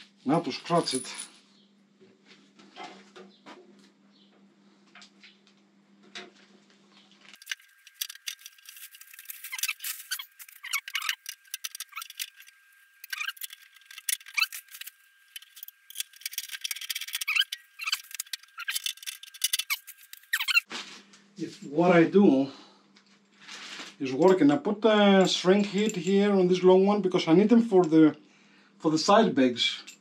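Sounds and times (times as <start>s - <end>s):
small metal parts clicking and rattling: 7.2s - 20.7s, 25.2s - 26.3s.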